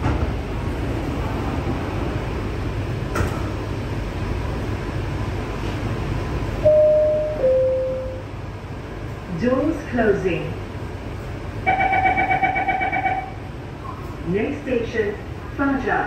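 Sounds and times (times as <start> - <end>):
train car low hum: 0.0 - 16.0
electronic door chime: 6.6 - 8.2, 11.7 - 13.4.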